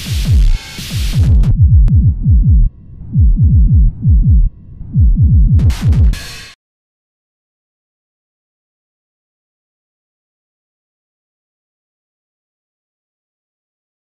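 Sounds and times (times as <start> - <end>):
techno kick drum pattern: 0.0 - 6.2.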